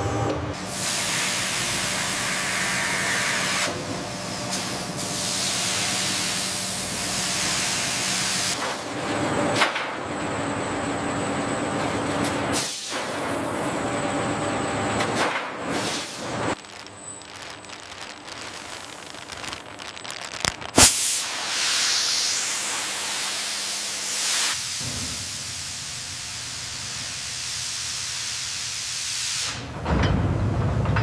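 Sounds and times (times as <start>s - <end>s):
loud hiss: 15.7s - 29.7s.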